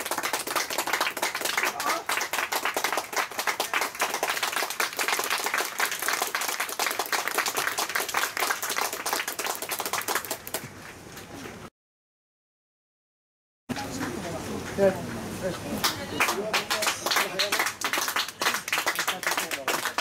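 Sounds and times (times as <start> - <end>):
spectators clapping: 0.0 - 10.7, 15.8 - 20.0.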